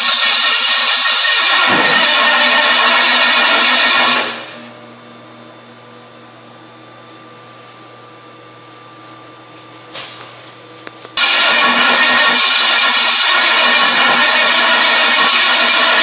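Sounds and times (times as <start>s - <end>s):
steady low hum: 4.2s - 12.8s
engine running loud: 11.2s - 16.0s.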